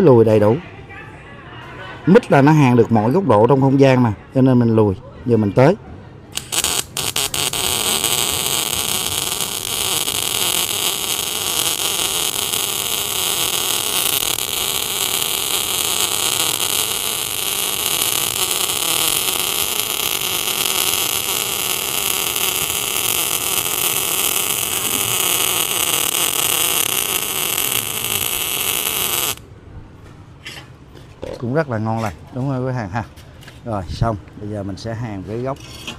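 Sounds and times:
welding arc sizzling hiss: 6.4 - 29.4.

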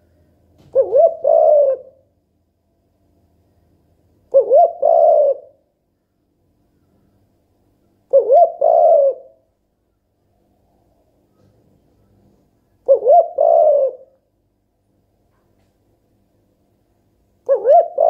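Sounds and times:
dove cooing: 0.7 - 2.0, 4.3 - 5.6, 8.1 - 9.4, 12.8 - 14.2, 17.4 - 18.0.

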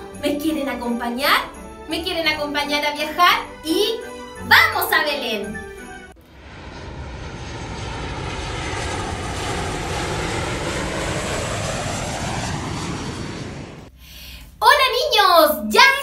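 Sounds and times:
aircraft engine flying past: 6.2 - 14.0.

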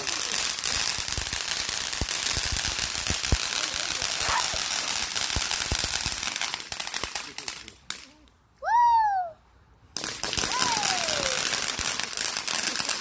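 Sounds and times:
firework fountain hissing: 0.0 - 8.0, 10.0 - 13.0
crackling pops: 0.0 - 8.4.

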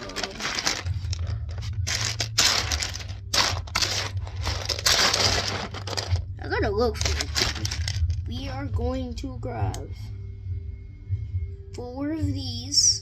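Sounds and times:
toy building pieces clattering: 7.0 - 8.0.

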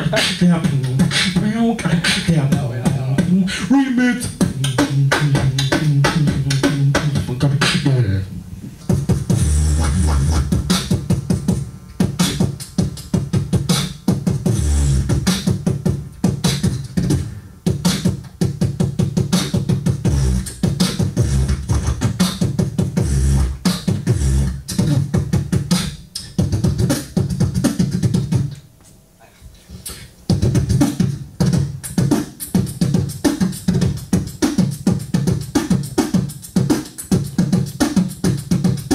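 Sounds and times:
beatboxing into microphone: 0.0 - 38.9
deep humming bass: 4.0 - 28.6.

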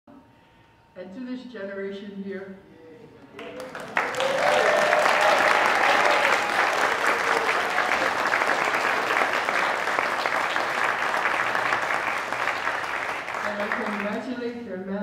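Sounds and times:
voices cheering: 3.4 - 14.0
audience applauding: 3.4 - 14.3.

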